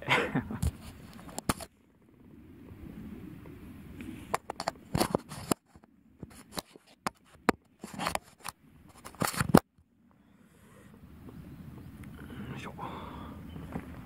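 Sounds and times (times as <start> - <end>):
hand rubbing camera: 0.6 - 1.7, 4.0 - 9.7
irregular clicks and scrapes: 0.6 - 1.7, 4.0 - 9.7.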